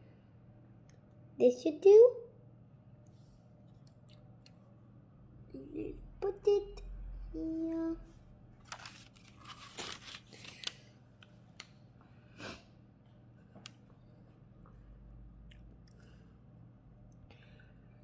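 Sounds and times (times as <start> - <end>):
sharp paper crackles: 8.6 - 11.0
parchment paper crinkling: 8.6 - 11.7.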